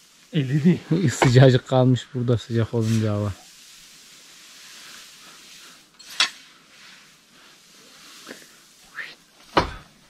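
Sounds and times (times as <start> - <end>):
hiss of straw: 0.0 - 10.0
shovel scraping: 5.6 - 7.0.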